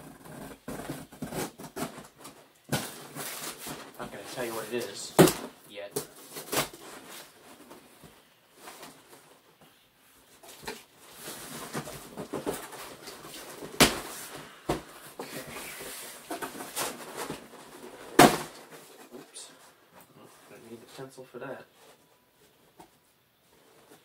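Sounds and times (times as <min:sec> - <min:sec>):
cardboard scraping and rustling: 0:00.0 - 0:09.4, 0:10.4 - 0:19.6.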